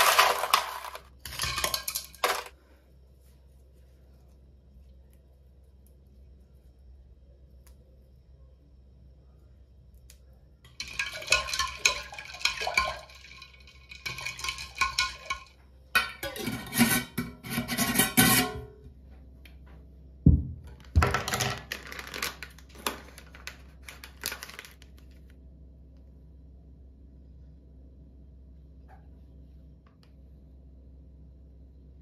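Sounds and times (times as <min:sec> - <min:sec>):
ice cubes clinking against glass: 0:00.0 - 0:02.5.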